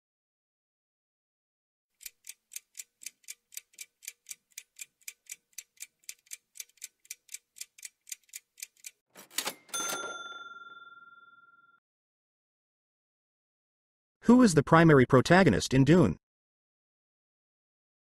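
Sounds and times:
clock ticking: 0:02.0 - 0:09.6
bell-like ding: 0:09.5 - 0:11.8.

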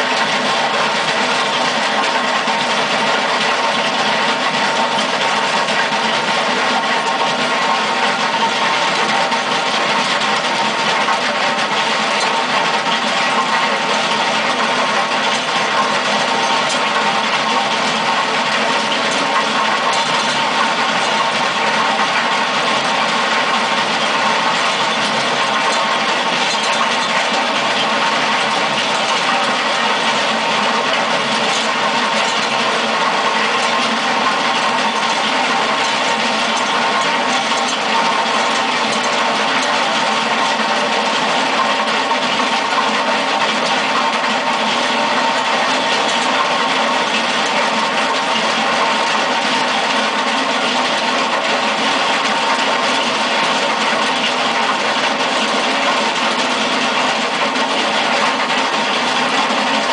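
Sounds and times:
cutting drum grinding concrete: 0:00.0 - 0:59.9
skid steer engine running hard: 0:00.0 - 0:59.9.

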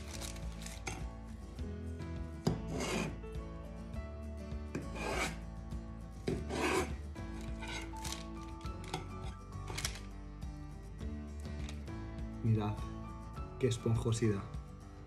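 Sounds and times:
knife sawing through bread: 0:02.7 - 0:03.2, 0:04.8 - 0:05.4, 0:06.3 - 0:07.9.

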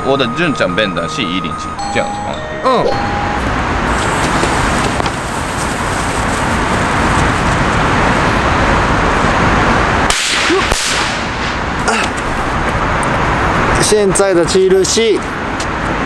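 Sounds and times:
firecracker fizzing: 0:10.1 - 0:11.8.

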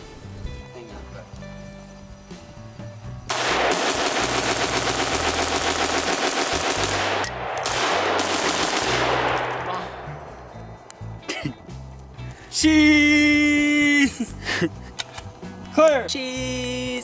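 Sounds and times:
rifle rapid fire: 0:03.3 - 0:10.9.

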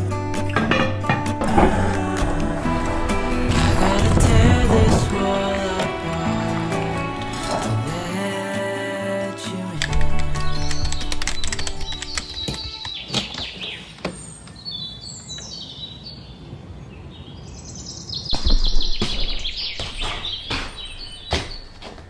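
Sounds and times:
small birds chirping: 0:10.2 - 0:22.0.

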